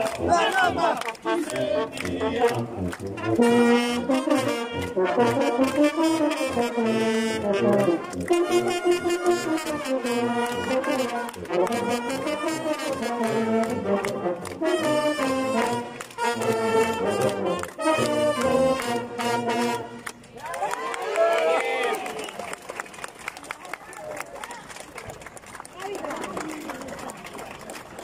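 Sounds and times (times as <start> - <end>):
brass band playing a march: 0.0 - 20.3.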